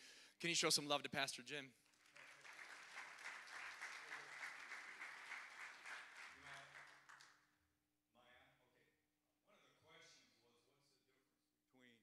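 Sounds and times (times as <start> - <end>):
congregation clapping: 1.8 - 7.5.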